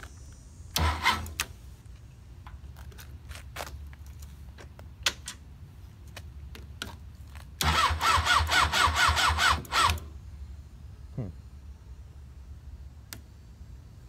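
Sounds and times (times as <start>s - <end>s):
motorcycle starter cranking engine: 0.7s - 1.5s, 7.6s - 10.1s.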